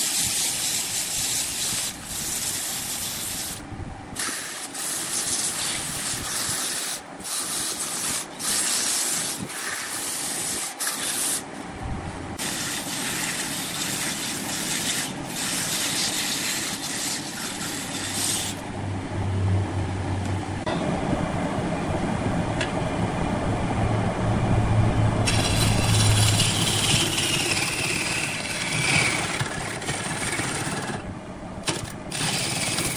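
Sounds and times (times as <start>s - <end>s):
abrasive sanding wood on lathe: 0.0s - 3.6s, 4.2s - 11.5s, 12.4s - 18.6s, 25.3s - 31.0s
low hum: 11.6s - 12.4s, 18.6s - 32.2s.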